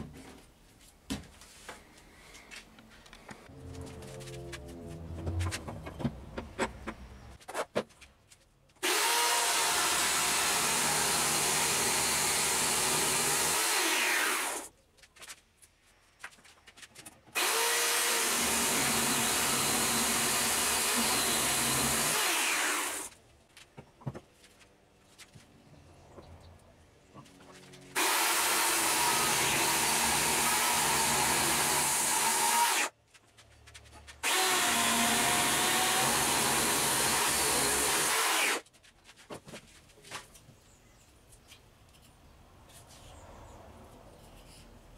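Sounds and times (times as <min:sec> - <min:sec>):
electric chainsaw cutting log: 0:08.8 - 0:14.7, 0:17.4 - 0:23.1, 0:27.9 - 0:32.9, 0:34.2 - 0:38.6.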